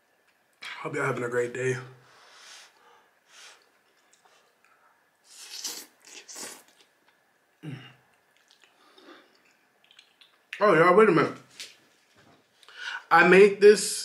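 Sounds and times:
person chewing: 3.5 - 10.6
person slurping noodles: 5.3 - 6.8.

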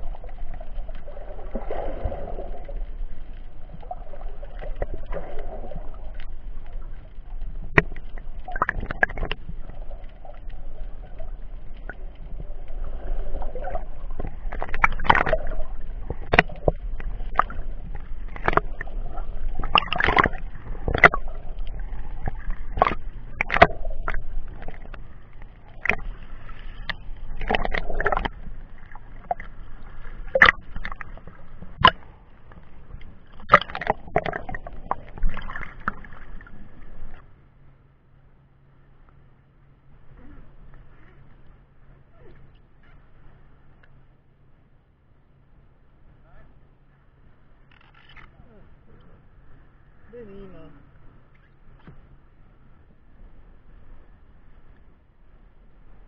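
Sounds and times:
water splashes: 0.0 - 37.3
water sloshing and gurgling: 0.0 - 56.0.

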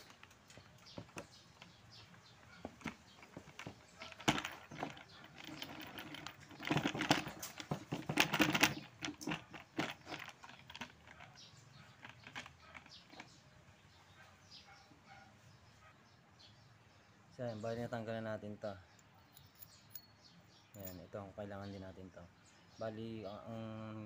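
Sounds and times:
plastic and metal clicking: 2.5 - 11.4, 12.0 - 13.4
dense clatter: 2.6 - 11.4.

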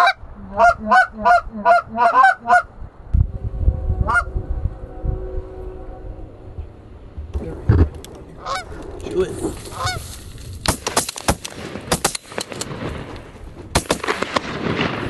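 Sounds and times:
geese honking: 0.0 - 2.8, 4.0 - 7.1, 8.3 - 8.8, 9.6 - 10.2
low rumble: 0.2 - 10.7.

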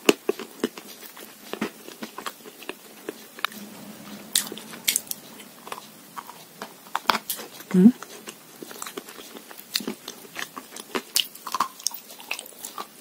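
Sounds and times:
chalk being chewed crunching: 0.0 - 3.4, 7.0 - 13.0.

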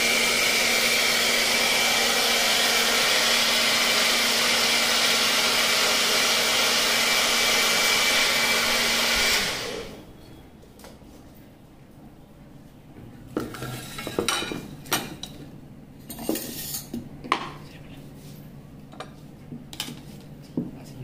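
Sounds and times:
mixer grinder running: 0.0 - 10.0.

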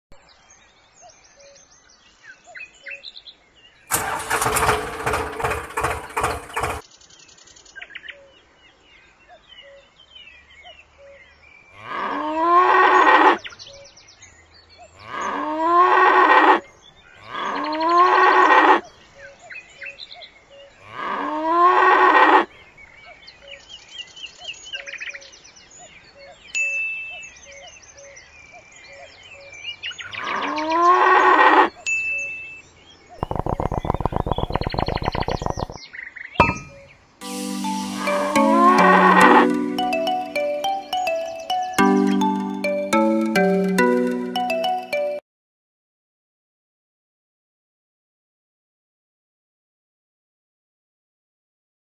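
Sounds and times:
loud rough noise: 3.9 - 6.8, 33.2 - 35.8
small bird chirps: 33.0 - 37.0.

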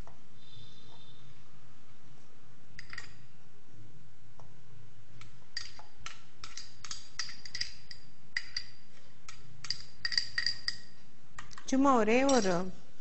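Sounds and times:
spoon tapping glass bowl: 12.2 - 12.6.

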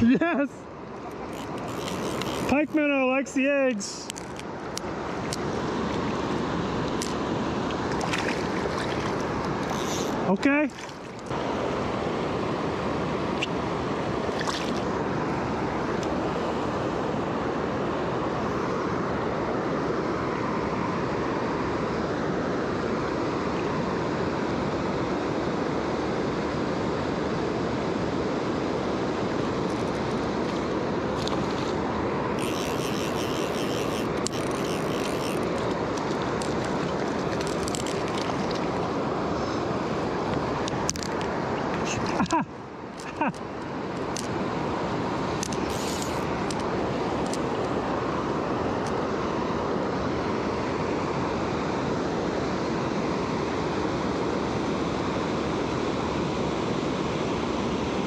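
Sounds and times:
river rushing: 0.0 - 58.0
bursts of higher hiss: 45.7 - 46.2.

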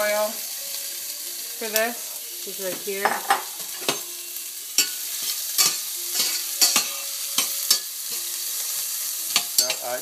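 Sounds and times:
onions and garlic sizzling in oil: 0.0 - 10.0
spatula scraping a pan: 4.8 - 7.9.

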